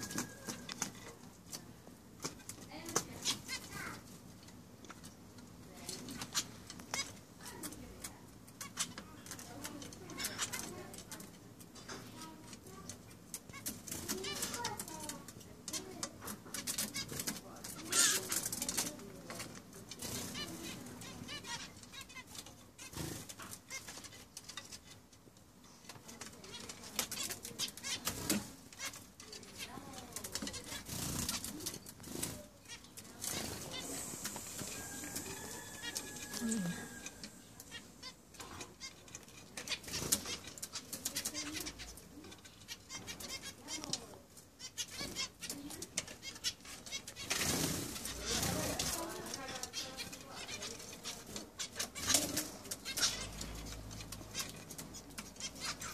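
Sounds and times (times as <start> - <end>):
finches chirping: 11.8 - 55.9
wing flutters: 26.2 - 37.8.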